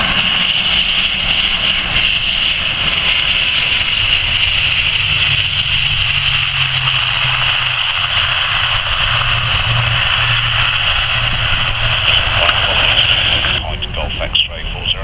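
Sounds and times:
turboprop engines droning: 0:00.0 - 0:15.0.

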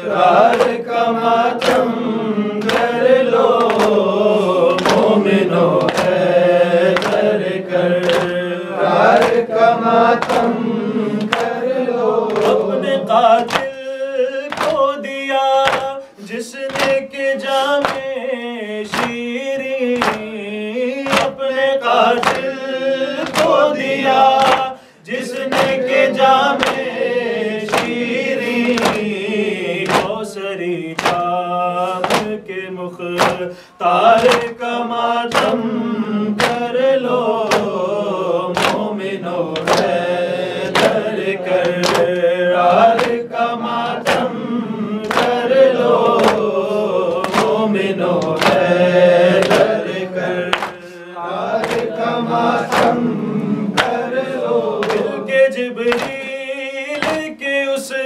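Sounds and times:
men chanting in unison: 0:00.0 - 0:58.0
hands slapping on chests: 0:00.4 - 0:13.8, 0:14.5 - 0:14.9, 0:15.6 - 0:16.0, 0:16.7 - 0:17.0, 0:17.8 - 0:18.1, 0:18.9 - 0:19.2, 0:19.9 - 0:20.4, 0:21.0 - 0:21.4, 0:22.0 - 0:22.6, 0:23.2 - 0:24.7, 0:25.4 - 0:27.0, 0:27.6 - 0:29.2, 0:29.8 - 0:30.2, 0:31.0 - 0:32.4, 0:33.2 - 0:33.5, 0:34.1 - 0:34.6, 0:35.3 - 0:35.8, 0:36.4 - 0:50.8, 0:51.5 - 0:55.2, 0:55.9 - 0:56.3, 0:57.0 - 0:57.3.

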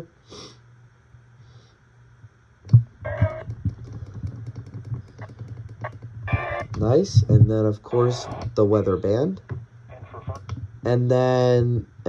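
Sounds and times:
radio broadcast from speaker: 0:03.1 - 0:03.6, 0:06.3 - 0:11.9.

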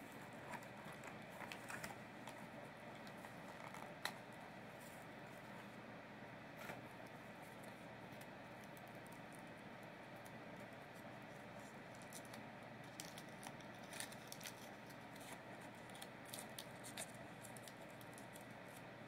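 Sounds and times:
foil wrapper crinkling: 0:11.8 - 0:18.6.

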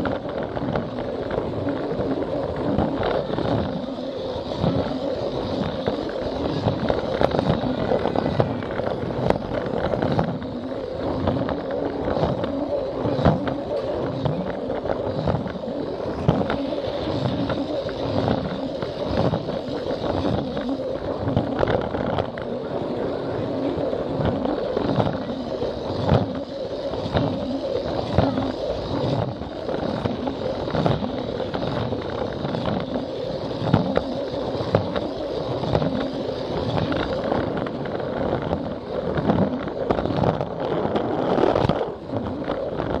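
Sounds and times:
toy train motor whir: 0:00.0 - 0:43.0.

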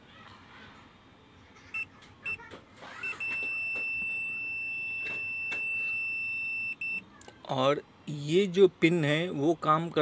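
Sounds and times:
multimeter continuity beeping: 0:01.7 - 0:07.1.

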